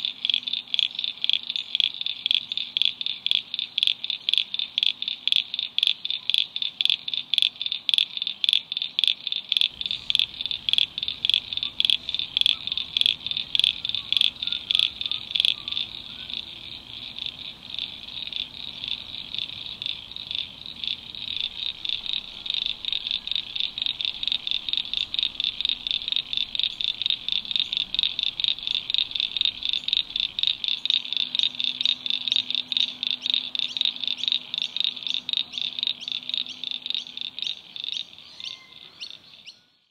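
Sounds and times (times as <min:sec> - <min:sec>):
high chirping animal calls: 0:09.7 - 0:39.7.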